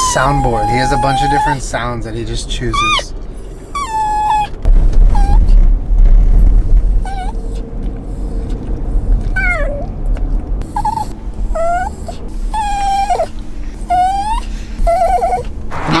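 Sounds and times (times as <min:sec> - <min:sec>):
dog whining: 0:00.0 - 0:01.8, 0:02.6 - 0:05.6, 0:06.9 - 0:08.6, 0:09.2 - 0:09.9, 0:10.6 - 0:16.0.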